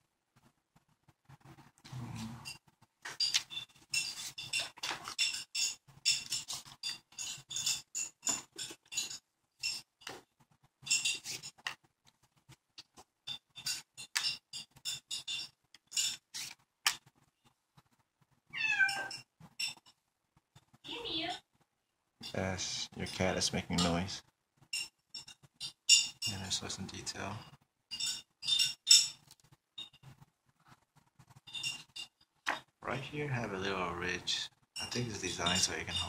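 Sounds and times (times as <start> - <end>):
cat meowing: 18.5 - 19.2.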